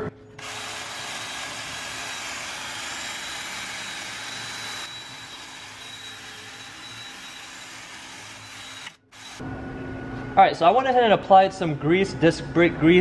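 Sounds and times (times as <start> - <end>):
drill wire brush whirring on metal: 0.4 - 9.4.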